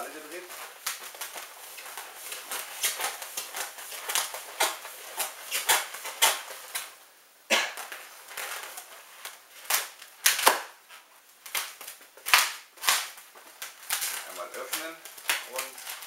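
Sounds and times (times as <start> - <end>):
balloon squeaking as it is twisted: 0.5 - 6.8.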